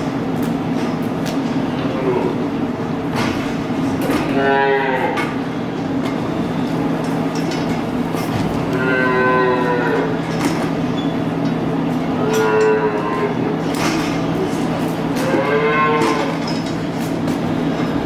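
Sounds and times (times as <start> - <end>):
steady low hum: 0.0 - 18.0
calves mooing: 4.1 - 5.4, 8.6 - 10.3, 12.0 - 13.7, 15.1 - 16.5.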